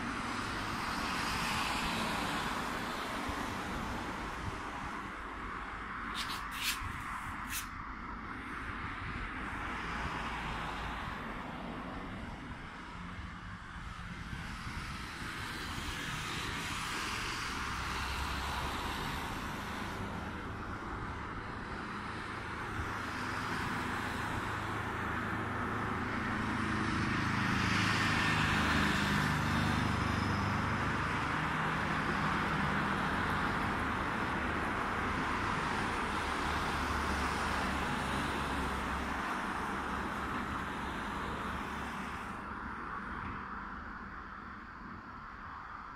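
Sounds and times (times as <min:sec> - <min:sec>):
distant aircraft engine: 0:00.0 - 0:45.5.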